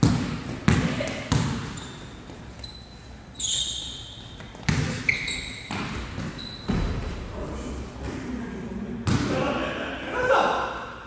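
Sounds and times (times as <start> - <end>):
sneakers squeaking on gym floor: 0.1 - 7.2
basketball thudding: 4.6 - 5.1.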